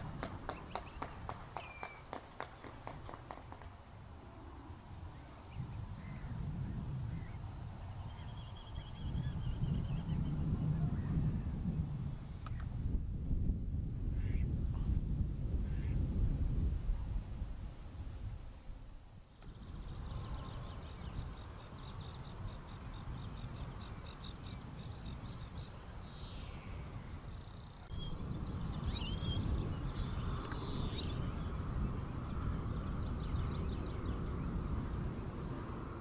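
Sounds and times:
songbirds singing: 0:00.0 - 0:03.7, 0:05.1 - 0:11.2, 0:19.3 - 0:35.7.

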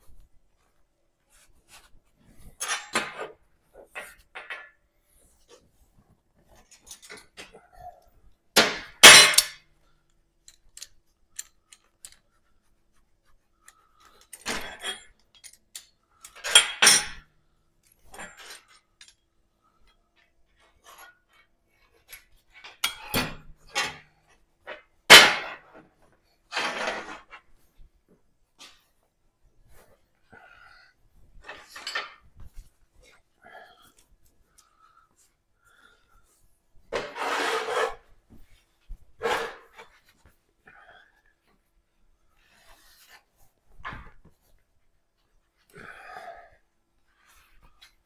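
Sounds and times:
metal tools clanking on table: 0:14.3 - 0:17.2, 0:31.5 - 0:32.2.

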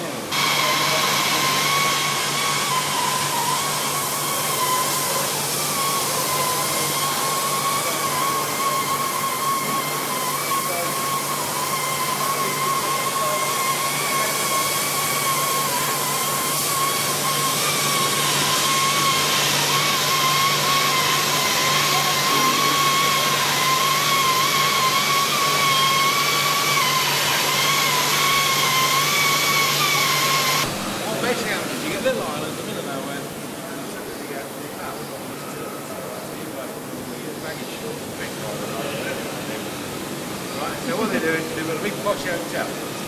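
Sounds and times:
cutting torch hissing: 0:00.2 - 0:43.0.

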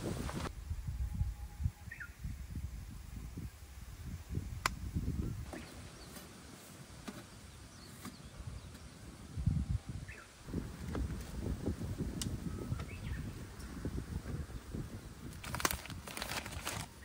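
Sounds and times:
wind buffeting microphone: 0:00.0 - 0:06.1, 0:08.3 - 0:17.0
bird chirping: 0:01.8 - 0:02.3, 0:12.4 - 0:13.7.

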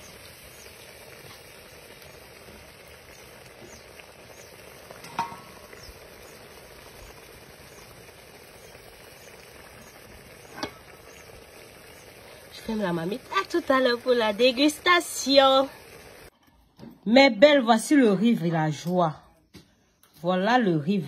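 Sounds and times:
rice sizzling in a pot: 0:00.0 - 0:16.4.

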